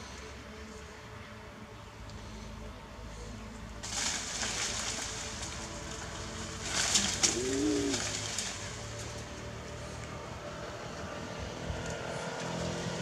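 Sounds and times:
leaves and branches rustling: 0:00.0 - 0:13.0
monkey cooing: 0:07.0 - 0:08.2.

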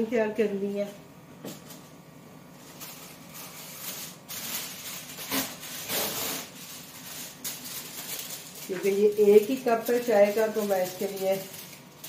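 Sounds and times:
packaging rustling and crinkling: 0:02.6 - 0:12.0.

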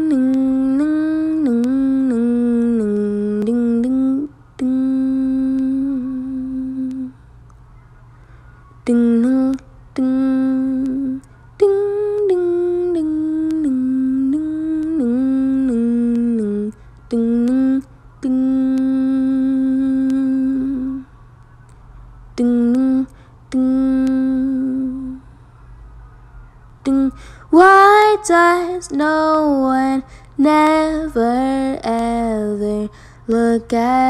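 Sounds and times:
woman humming a melody: 0:00.0 - 0:07.2, 0:08.8 - 0:21.1, 0:22.4 - 0:25.3.

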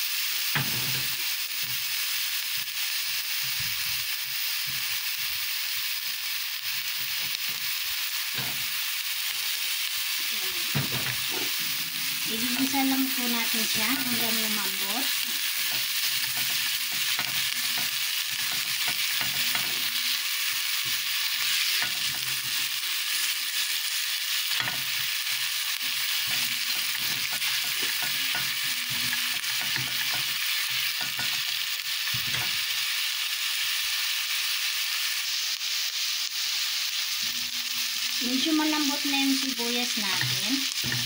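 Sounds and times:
onions sizzling in oil: 0:00.0 - 0:41.0
spatula scraping pot: 0:11.2 - 0:20.2, 0:24.5 - 0:31.5.

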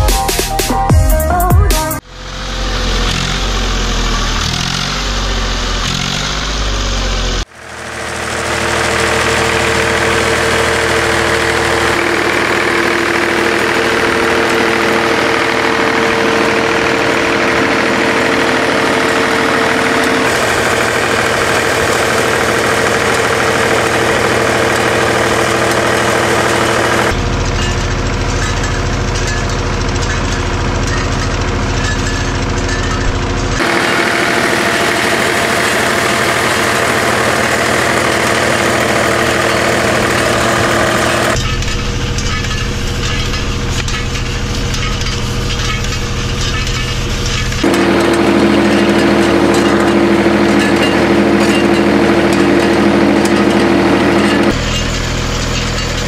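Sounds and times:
music: 0:00.0 - 0:02.0
tractor diesel engine running: 0:00.0 - 0:56.0.

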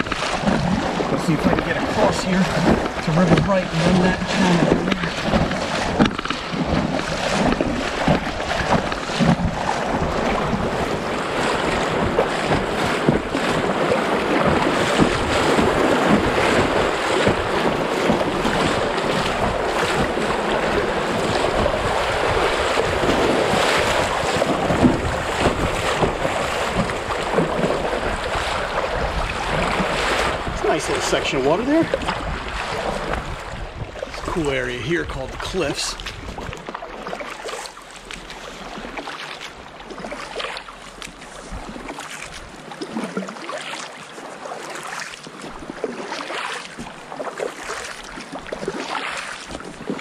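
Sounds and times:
wind on microphone: 0:00.0 - 0:36.8
rushing river water: 0:00.0 - 0:50.0.

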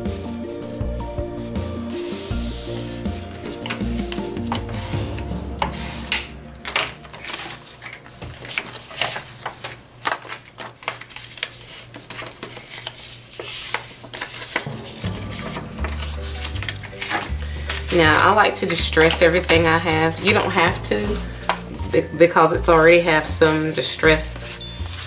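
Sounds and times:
paper rustling and crinkling: 0:02.0 - 0:04.9, 0:07.0 - 0:14.8, 0:16.3 - 0:21.7, 0:22.4 - 0:25.0.

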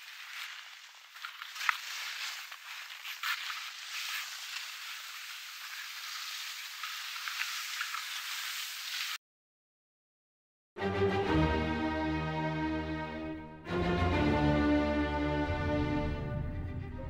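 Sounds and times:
ski scrapes: 0:00.0 - 0:09.2
skis sliding over snow: 0:00.0 - 0:09.2.

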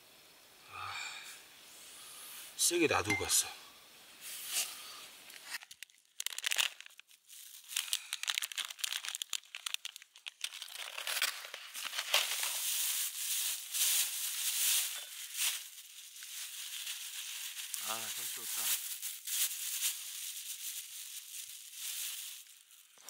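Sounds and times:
plastic packaging crinkling: 0:05.3 - 0:23.0.

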